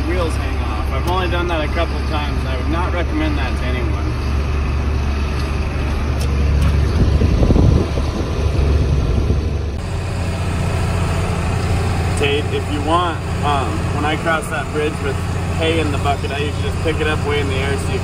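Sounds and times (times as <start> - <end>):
tractor engine running: 0.0 - 18.0.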